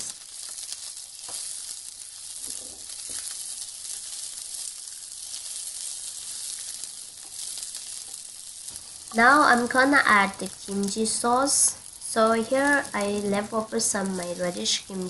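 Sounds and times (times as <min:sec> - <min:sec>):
wooden spatula scraping: 0:00.0 - 0:11.4
onions sizzling in oil: 0:00.0 - 0:15.0.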